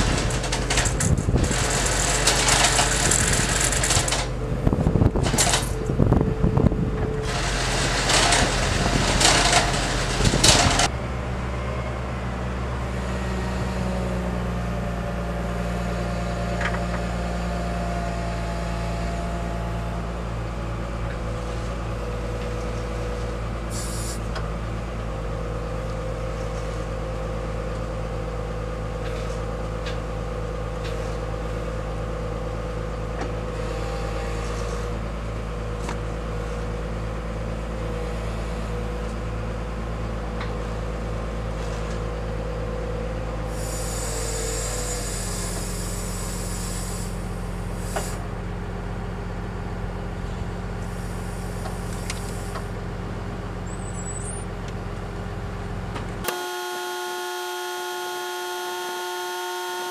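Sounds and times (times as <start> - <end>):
steady whine: 0.0 - 15.2
diesel engine running: 0.0 - 59.9
hiss: 23.7 - 24.2, 43.5 - 48.3, 50.8 - 52.7.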